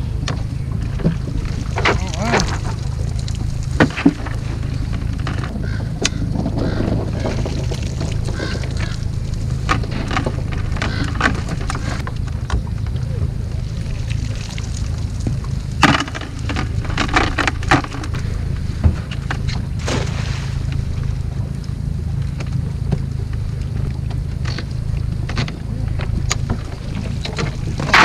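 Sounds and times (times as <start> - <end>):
steady low rumble: 0.0 - 28.0
water splashes: 0.0 - 28.0
net splashing into water: 19.8 - 20.7.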